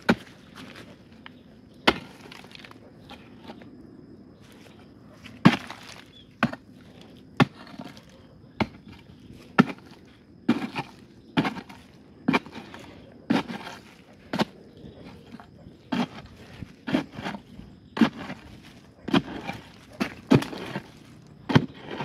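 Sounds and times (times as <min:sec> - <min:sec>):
digging tool chopping hard earth: 0:00.0 - 0:00.9, 0:01.8 - 0:03.2, 0:05.4 - 0:06.7, 0:07.4 - 0:22.0.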